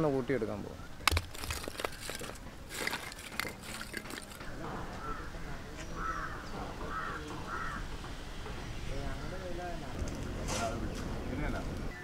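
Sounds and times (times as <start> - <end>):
charcoal lumps clattering: 1.0 - 5.2
crows cawing: 4.6 - 8.0.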